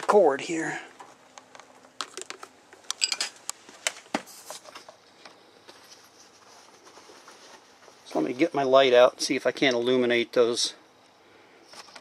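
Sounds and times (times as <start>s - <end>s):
camera handling clicks and rustles: 1.3s - 5.4s.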